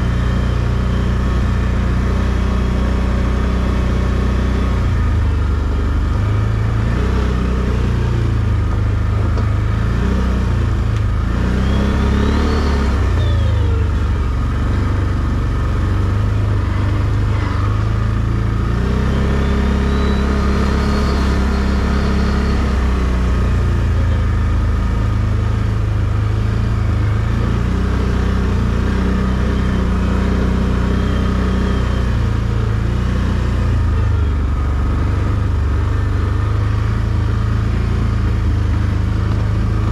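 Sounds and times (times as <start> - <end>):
atv engine running: 0.0 - 39.9.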